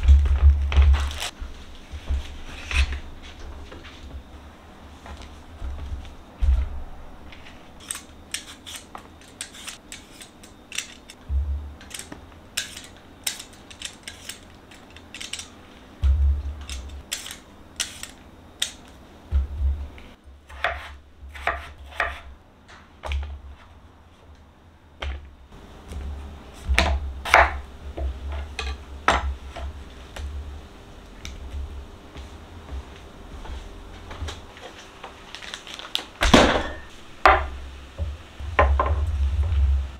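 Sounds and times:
potato peeler scraping: 7.8s - 11.2s, 11.8s - 15.5s, 16.6s - 18.8s
dull thuds: 11.3s - 11.8s, 16.0s - 16.6s, 19.3s - 20.0s.

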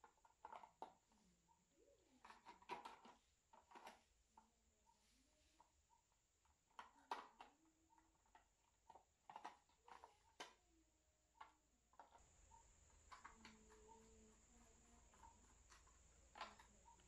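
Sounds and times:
plastic parts clicking and knocking: 0.0s - 1.1s, 2.1s - 4.6s, 6.4s - 10.6s, 11.3s - 12.3s, 12.9s - 17.0s.

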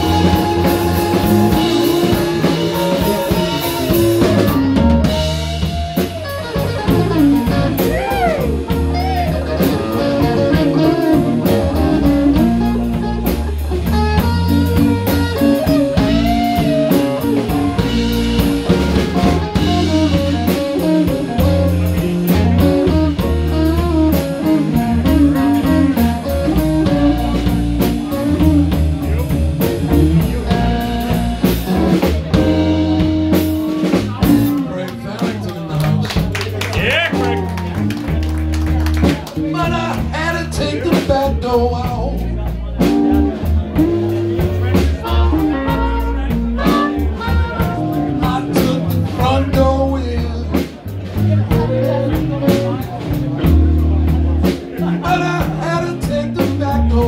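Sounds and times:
blues band playing: 0.0s - 57.0s.

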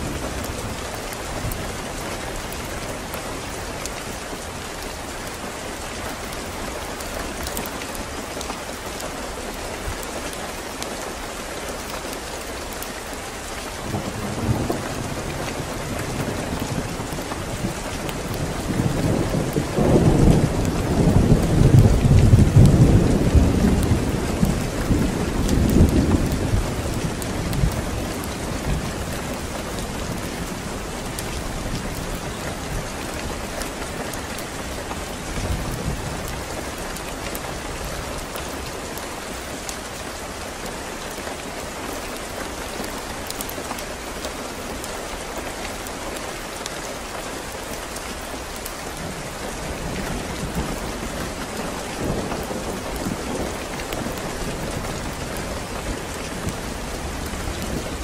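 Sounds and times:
steady rain falling: 0.0s - 58.0s
low rolls of thunder: 13.8s - 33.8s, 49.0s - 58.0s.

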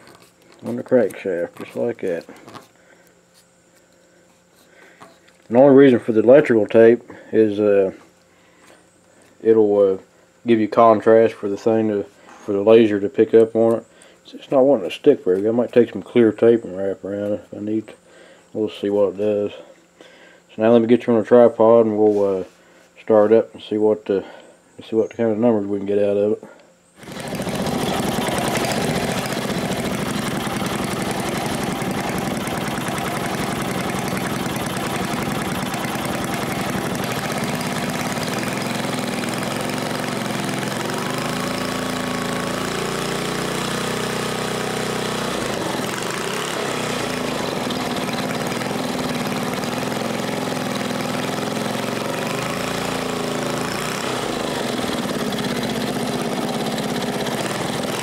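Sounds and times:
small engine running: 27.0s - 58.0s.

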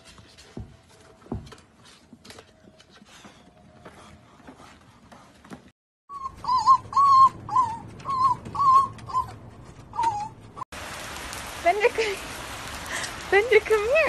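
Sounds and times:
puppy yipping: 6.1s - 10.6s.

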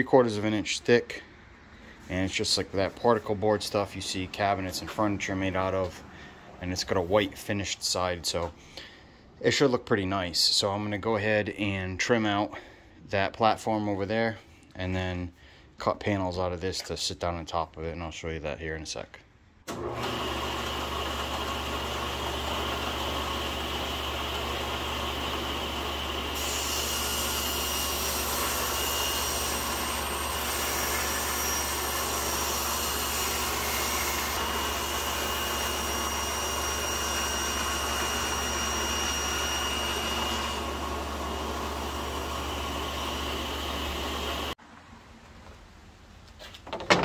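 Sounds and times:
saw blade cutting wood: 19.7s - 44.6s
table saw running: 19.7s - 44.6s.

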